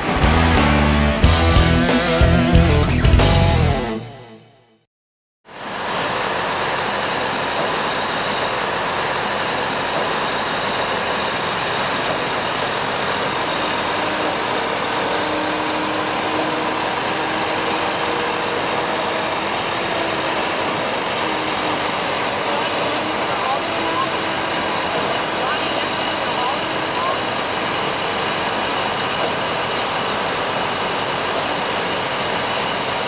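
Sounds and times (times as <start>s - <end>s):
diesel excavator engine running: 0.0s - 4.2s, 5.7s - 33.0s.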